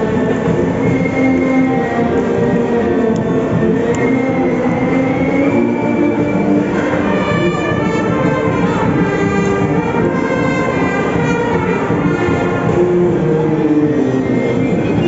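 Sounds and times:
brass marching band playing: 0.0s - 15.0s.

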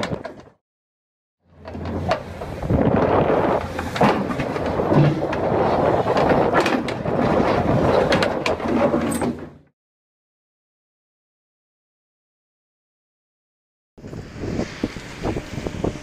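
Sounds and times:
excavator engine rumble: 1.4s - 9.7s, 14.0s - 16.0s
metallic clanks and knocks: 3.6s - 9.6s.

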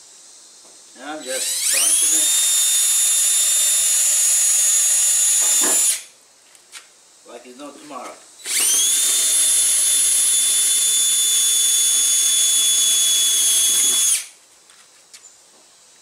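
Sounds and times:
drill boring into sheet metal: 1.2s - 6.1s, 8.4s - 14.3s.

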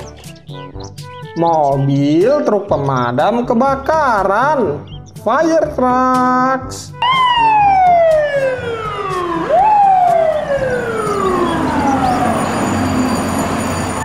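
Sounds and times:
fire truck siren wailing: 7.0s - 14.0s
street traffic noise: 7.1s - 14.0s.

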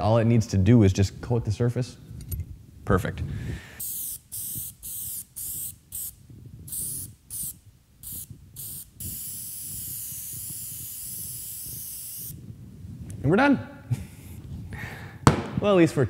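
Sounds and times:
aerosol sprayer hissing: 3.8s - 12.4s.

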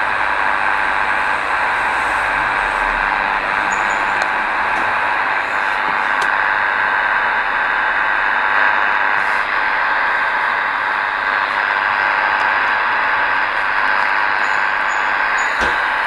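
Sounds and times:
radio static hiss: 0.0s - 16.0s
faint whistling tones: 3.2s - 5.6s, 14.2s - 16.0s.

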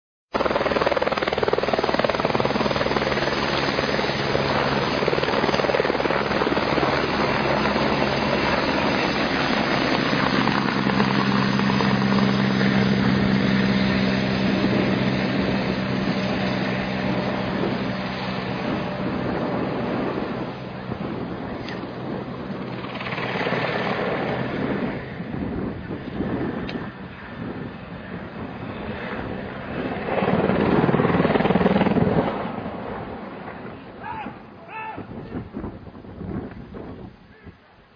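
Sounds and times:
helicopter flying: 0.3s - 37.3s.

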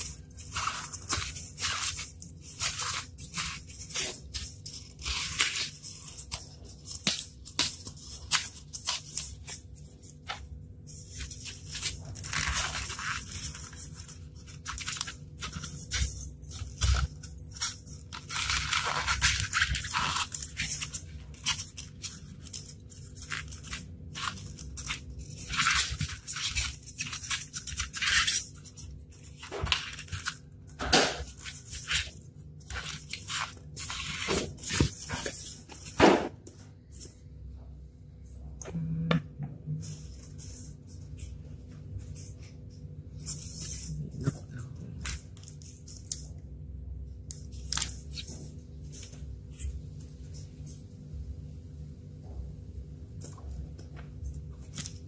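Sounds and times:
styrofoam rubbing and crunching: 0.0s - 36.2s.

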